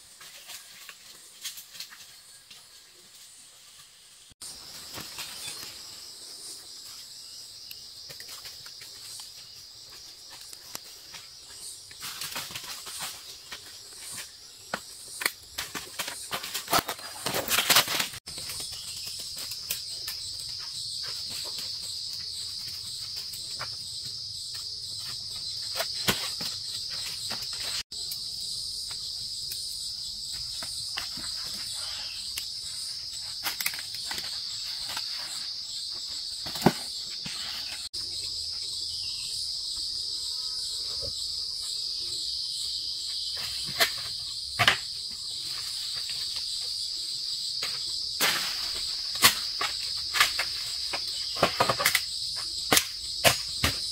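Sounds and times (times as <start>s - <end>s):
high-pitched insect chorus: 0.0s - 53.9s.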